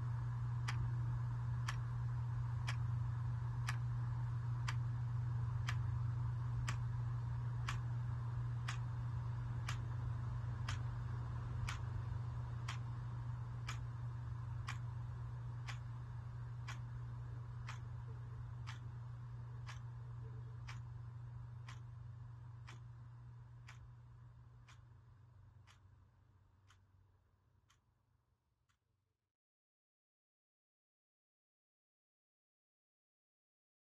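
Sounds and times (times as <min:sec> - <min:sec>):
steady low hum: 0:00.0 - 0:28.0
wall clock ticking: 0:02.6 - 0:02.9, 0:03.6 - 0:03.9, 0:04.6 - 0:04.8, 0:05.6 - 0:05.9, 0:06.6 - 0:06.9, 0:07.6 - 0:07.9, 0:08.5 - 0:09.0, 0:09.6 - 0:10.0, 0:10.6 - 0:12.0, 0:12.6 - 0:13.0, 0:13.6 - 0:14.0, 0:14.6 - 0:23.0, 0:23.6 - 0:24.0.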